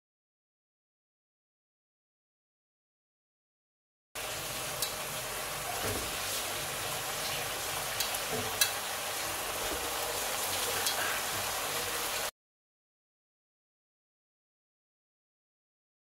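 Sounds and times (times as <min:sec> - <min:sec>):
gravy sizzling in a wok: 0:04.2 - 0:12.3.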